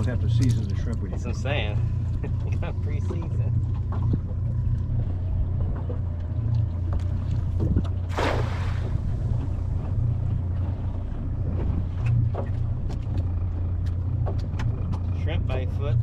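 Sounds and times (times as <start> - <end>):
boat motor idling: 0.0 - 16.0
net splashing on water: 8.1 - 9.1.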